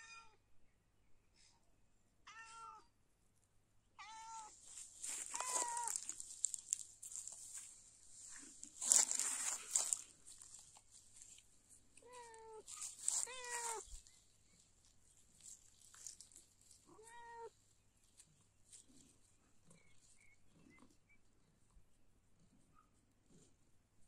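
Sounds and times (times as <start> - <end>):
cat meowing: 2.3 - 2.9, 4.0 - 4.5, 5.3 - 6.0, 12.0 - 13.8, 16.9 - 17.5
rustling noise: 4.3 - 17.0.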